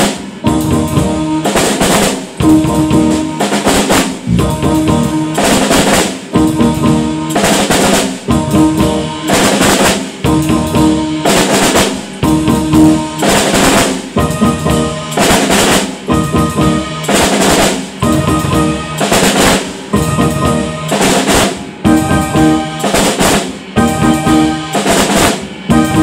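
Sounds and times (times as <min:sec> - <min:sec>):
acoustic drum kit beat: 0:00.0 - 0:26.0
cymbal and drum accents: 0:00.0 - 0:26.0.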